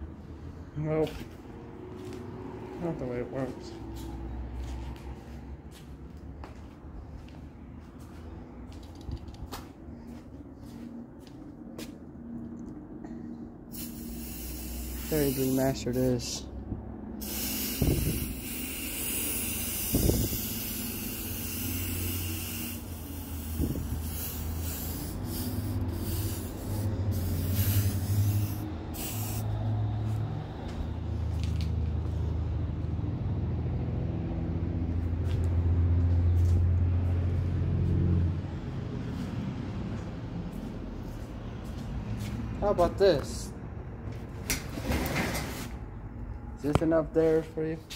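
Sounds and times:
spray paint can hissing: 0:13.7 - 0:15.9, 0:17.2 - 0:29.5.

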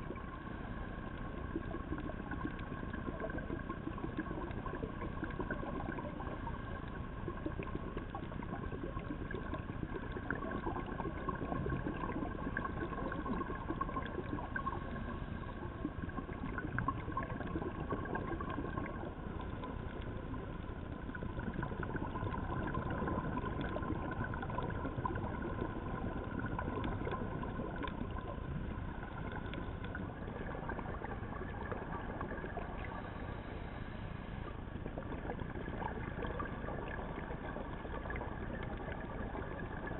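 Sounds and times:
steady underwater hum: 0:00.0 - 0:39.9
crackle of tiny clicks: 0:16.1 - 0:33.1.

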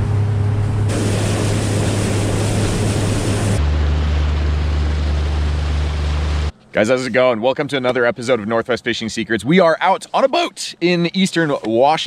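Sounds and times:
outboard motor drone: 0:00.0 - 0:06.6
rushing water and wind: 0:00.9 - 0:03.8.

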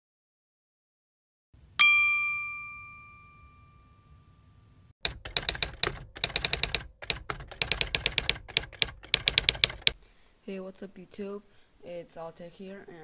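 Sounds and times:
bright chime: 0:01.8 - 0:04.7
typewriter key clacks: 0:05.0 - 0:10.0.

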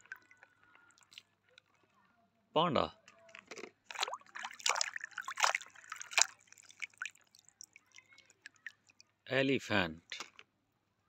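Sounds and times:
water dripping: 0:00.0 - 0:01.3, 0:03.9 - 0:09.1
hand splashing in water: 0:03.9 - 0:08.8.

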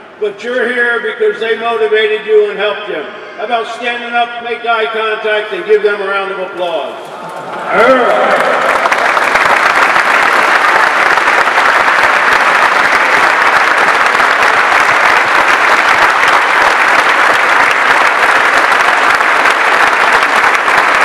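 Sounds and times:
large crowd applauding: 0:07.0 - 0:21.0.

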